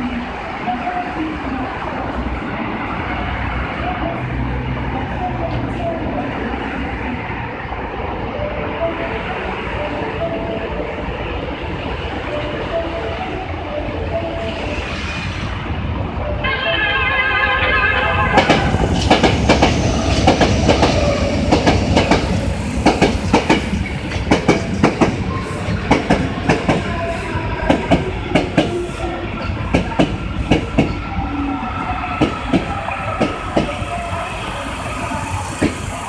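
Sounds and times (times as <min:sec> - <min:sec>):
train running rumble with whine: 0:00.0 - 0:36.0
train wheels clacking over rail joints: 0:18.3 - 0:26.9, 0:27.7 - 0:31.1.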